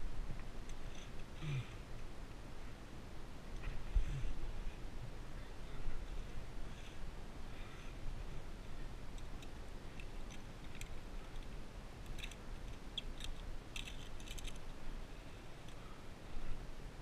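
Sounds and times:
low background rumble: 0.0 - 17.0
carabiners clinking on steel cable: 9.2 - 14.7.

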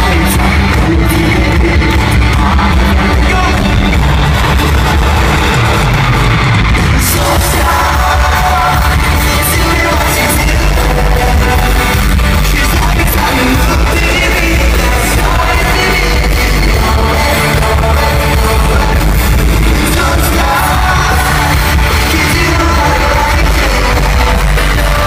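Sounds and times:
drums: 0.0 - 25.0
electric guitars: 0.0 - 25.0
lead singing and yelling: 0.0 - 25.0
live pop-punk band: 0.0 - 25.0.

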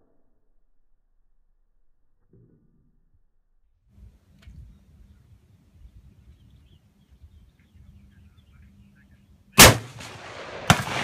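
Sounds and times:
rifle shot with ringing tail: 9.6 - 11.0.

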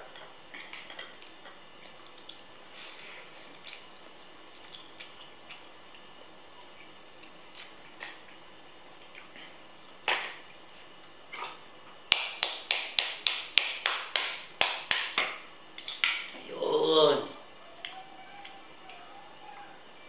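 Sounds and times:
knife tapping crab shell: 12.1 - 15.3.

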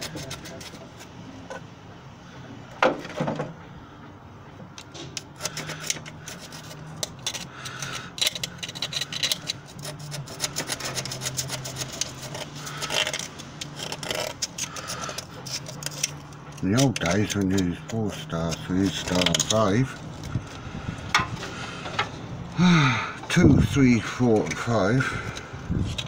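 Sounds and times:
hand tool scraping metal: 0.0 - 1.2, 5.2 - 22.1, 23.6 - 26.0.

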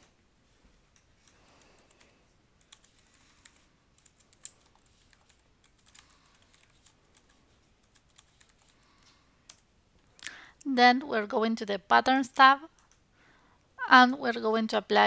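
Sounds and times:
faint keyboard typing: 0.8 - 10.7, 12.6 - 13.1.

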